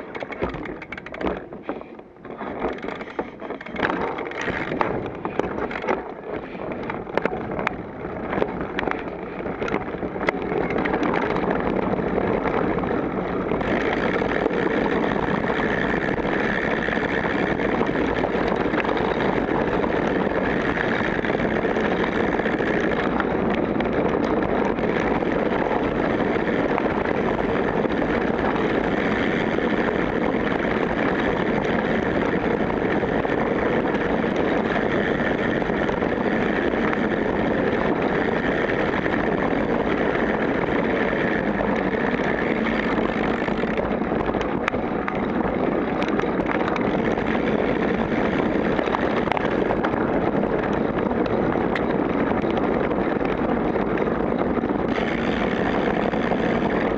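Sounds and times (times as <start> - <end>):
bike tyre and frame rattle: 0.0 - 56.9
wind rushing over microphone: 0.0 - 56.9.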